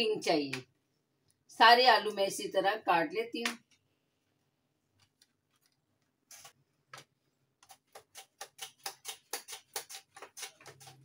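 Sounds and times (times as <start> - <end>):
potato slicing on mandoline: 7.6 - 11.0.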